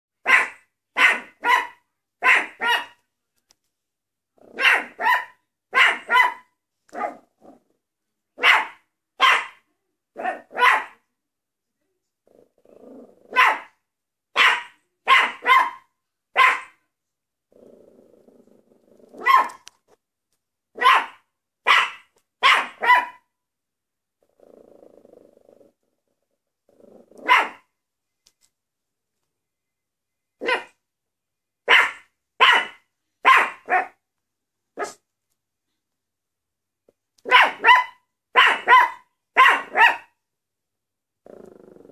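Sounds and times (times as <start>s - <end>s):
dog barking in sharp yaps: 0.2s - 3.0s, 4.6s - 7.2s, 8.4s - 9.6s, 10.2s - 11.0s, 14.4s - 16.8s, 19.2s - 19.7s, 20.8s - 23.2s, 27.2s - 27.6s, 30.4s - 30.8s, 31.7s - 34.0s, 34.8s - 35.0s, 37.2s - 40.1s
dog growling low: 7.4s - 7.8s, 12.2s - 13.3s, 17.5s - 19.2s, 24.2s - 27.2s, 41.2s - 41.9s.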